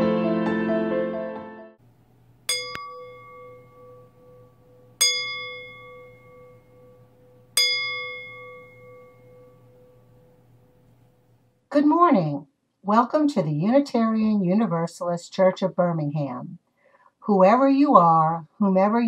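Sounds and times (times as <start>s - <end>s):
metal chime struck: 2.5s - 10.2s.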